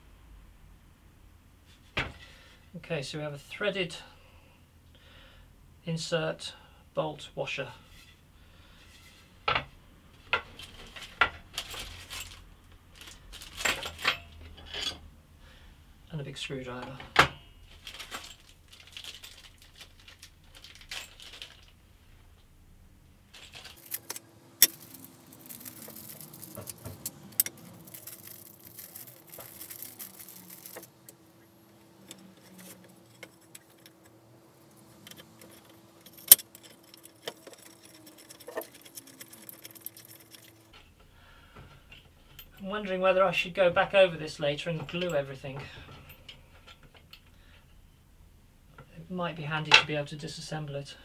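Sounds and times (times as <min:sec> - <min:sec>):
faint steady hum: 0:00.0 - 0:51.0
metal hardware clinking: 0:23.3 - 0:41.0.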